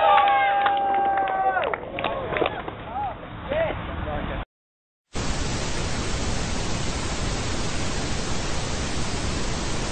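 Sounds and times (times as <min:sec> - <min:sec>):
television static hiss: 0:05.2 - 0:09.9.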